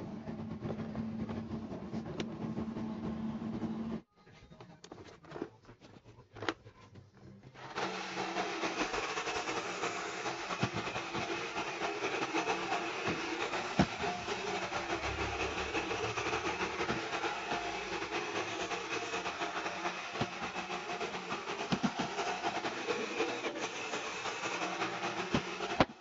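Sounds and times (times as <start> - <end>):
robot vacuum motors running: 7.6 - 26.0.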